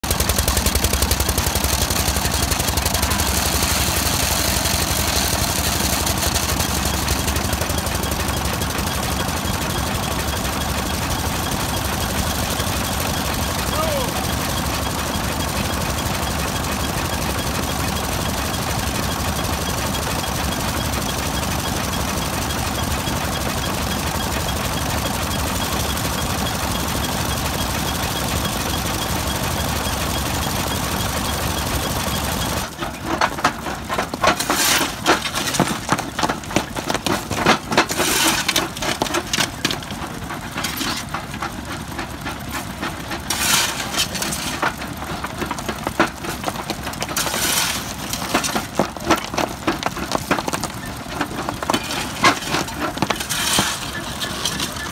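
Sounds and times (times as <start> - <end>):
stationary engine running: 0.0 - 54.9
jaw crusher cracking stone: 43.3 - 54.9.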